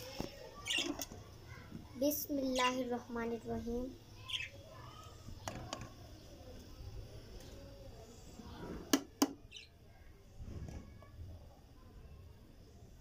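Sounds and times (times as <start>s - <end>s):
faint chirp: 0.0s - 3.0s, 3.8s - 10.4s.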